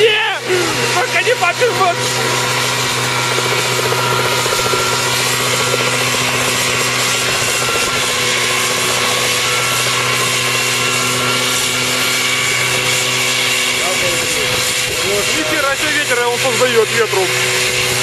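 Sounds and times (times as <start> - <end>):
helicopter engine droning: 0.0 - 18.0.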